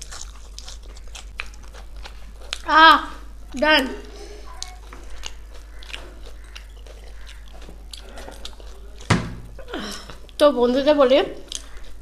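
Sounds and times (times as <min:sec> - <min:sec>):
chewing and mouth clicks: 0:00.0 - 0:02.7, 0:04.4 - 0:10.5, 0:11.4 - 0:12.0.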